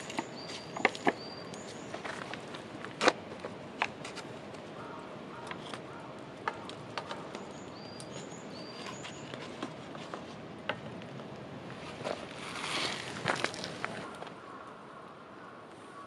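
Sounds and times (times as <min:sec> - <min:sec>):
bird chirping: 0:00.0 - 0:02.2, 0:04.8 - 0:09.6
paper cups rustling and clicking: 0:00.0 - 0:04.6, 0:08.7 - 0:11.2, 0:11.8 - 0:14.4
steady outdoor hiss: 0:00.0 - 0:16.0.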